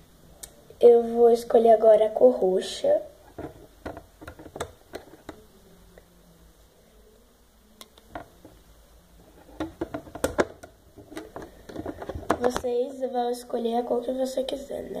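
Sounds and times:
hands tapping plastic loom: 0:09.5 - 0:12.7.

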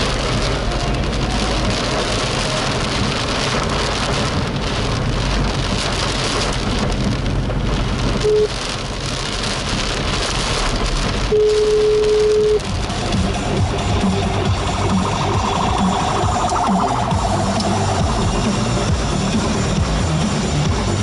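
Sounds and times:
heavy rain on car roof: 0:00.0 - 0:21.0
short steady beep: 0:08.2 - 0:08.5, 0:11.3 - 0:12.6.

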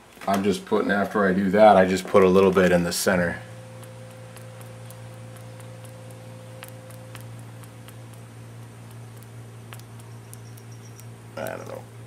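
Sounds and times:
low background hum: 0:00.0 - 0:12.0
faint steady tone: 0:02.3 - 0:11.9
faint ticks and clicks: 0:03.4 - 0:11.8.

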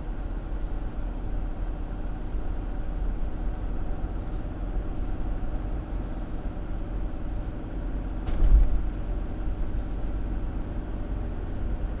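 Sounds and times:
road and engine rumble: 0:00.0 - 0:12.0
car thumping over bump: 0:08.2 - 0:09.1.

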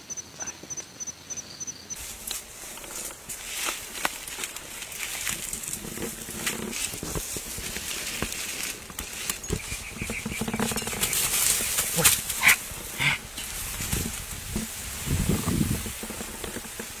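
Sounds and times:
leaves and stems rustling: 0:02.0 - 0:17.0
dog-like animal calls: 0:12.0 - 0:13.2.

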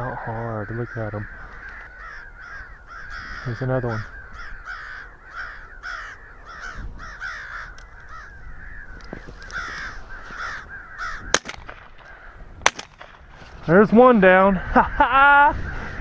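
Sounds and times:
crows cawing: 0:00.0 - 0:13.4, 0:14.6 - 0:16.0
shotgun shots: 0:11.3 - 0:13.3.

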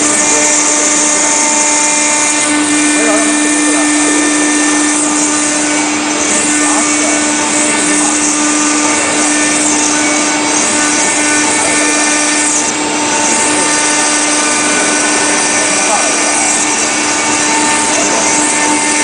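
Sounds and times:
router spindle whining: 0:00.0 - 0:19.0
water coolant jet hissing: 0:00.0 - 0:19.0.

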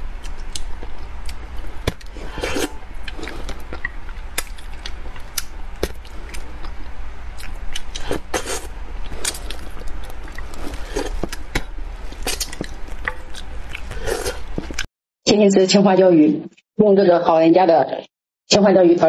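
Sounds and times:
chewing: 0:00.2 - 0:06.8, 0:07.4 - 0:14.9
slurping: 0:01.9 - 0:03.9, 0:07.8 - 0:14.9.

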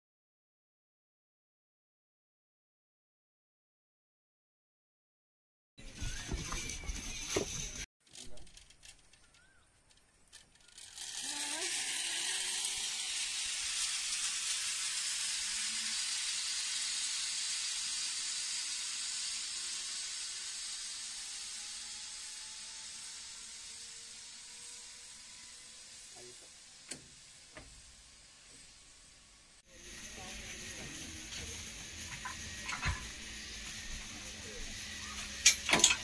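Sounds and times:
zip line pulleys whirring on cable: 0:05.8 - 0:36.0
faint whine rising in pitch: 0:10.6 - 0:35.6.

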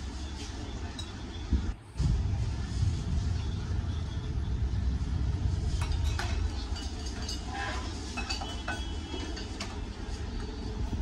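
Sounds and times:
low rumble: 0:01.7 - 0:06.8
metal ladle clinking bowls: 0:05.8 - 0:09.8.

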